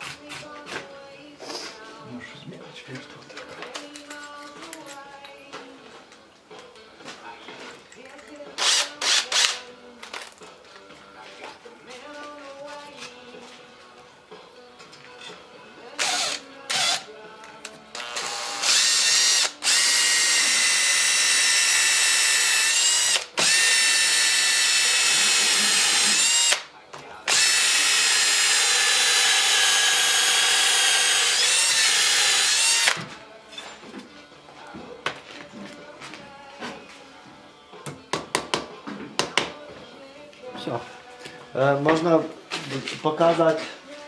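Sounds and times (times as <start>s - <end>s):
cordless drill boring into brick: 8.6s - 9.6s, 16.0s - 17.1s, 17.9s - 26.7s, 27.3s - 33.0s.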